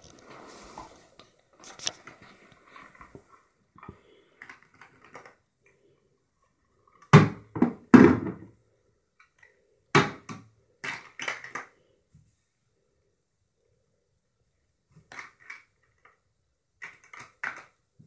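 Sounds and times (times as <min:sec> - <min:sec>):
plastic toys clattering into bucket: 0:03.8 - 0:05.5, 0:09.2 - 0:11.8, 0:15.0 - 0:16.2, 0:16.8 - 0:17.8.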